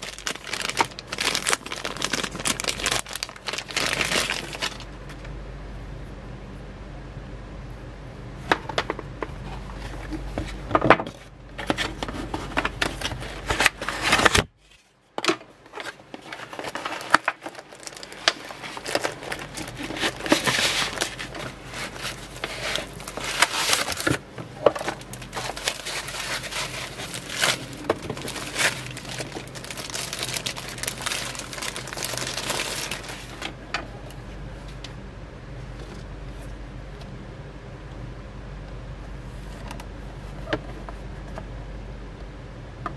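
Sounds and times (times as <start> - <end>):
foam and plastic crinkling: 0.0 - 5.3, 8.5 - 33.7.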